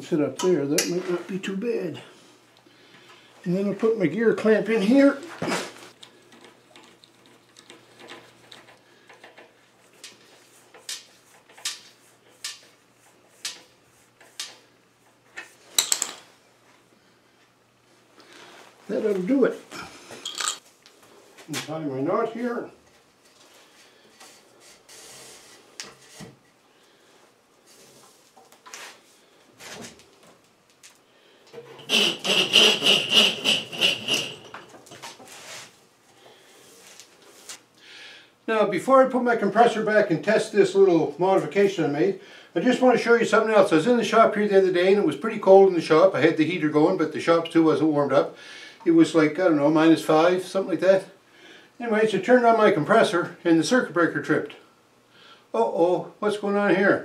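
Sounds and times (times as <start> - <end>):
rope rasping on metal handle: 31.7 - 34.7.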